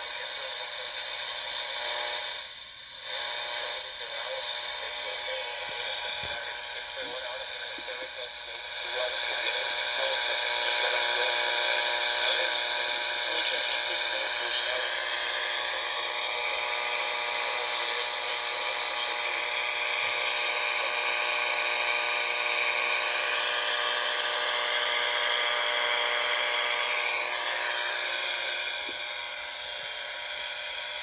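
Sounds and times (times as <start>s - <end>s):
buzzy whine of steady tones: 0.0s - 31.0s
radio static hiss: 0.0s - 31.0s.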